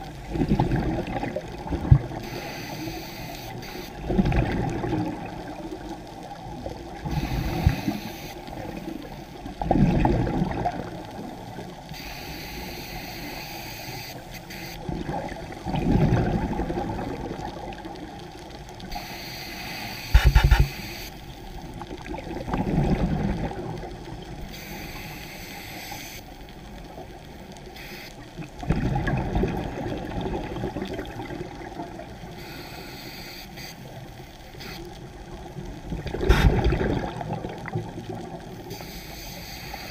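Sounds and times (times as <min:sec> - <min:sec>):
exhaled bubbles rumbling underwater: 0:00.0 - 0:02.4, 0:04.0 - 0:11.9, 0:14.8 - 0:19.0, 0:21.2 - 0:24.8, 0:26.3 - 0:32.6, 0:33.8 - 0:38.8
regulator hiss: 0:02.2 - 0:04.0, 0:07.0 - 0:09.2, 0:11.9 - 0:14.8, 0:18.8 - 0:21.4, 0:24.5 - 0:26.4, 0:27.6 - 0:28.2, 0:32.3 - 0:34.9, 0:38.6 - 0:39.9.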